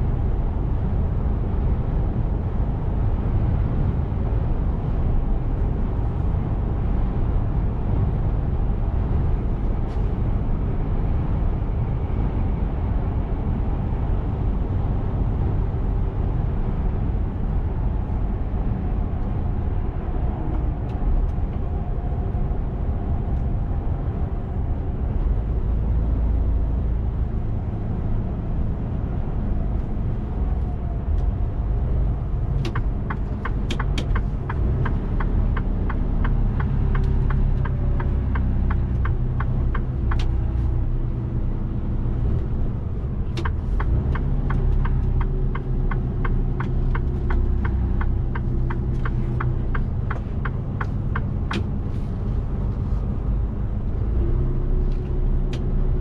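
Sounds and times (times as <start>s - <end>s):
truck diesel engine and road noise: 0.0s - 56.0s
turn signal ticking: 32.0s - 40.9s, 42.3s - 53.3s.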